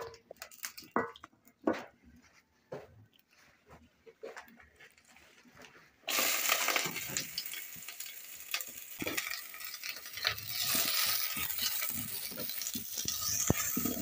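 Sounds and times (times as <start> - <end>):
onions sizzling in hot oil: 6.1 - 14.0
wooden spoon scraping a pan: 6.1 - 14.0.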